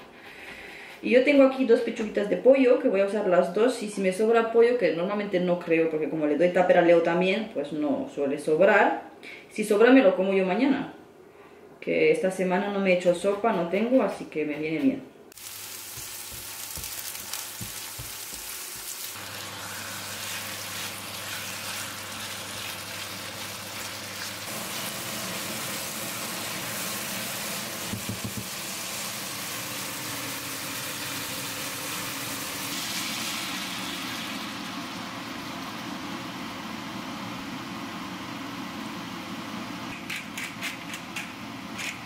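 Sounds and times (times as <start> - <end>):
chicken sizzling in a pan: 15.3 - 36.1.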